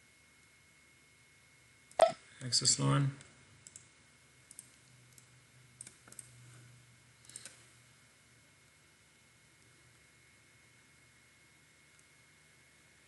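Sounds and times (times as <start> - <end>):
computer mouse clicks: 3.6 - 3.9, 4.5 - 6.3, 7.2 - 7.6.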